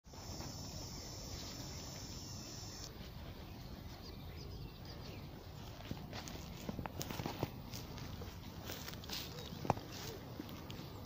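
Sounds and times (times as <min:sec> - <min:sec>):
faint bird chirps: 0:00.2 - 0:05.8.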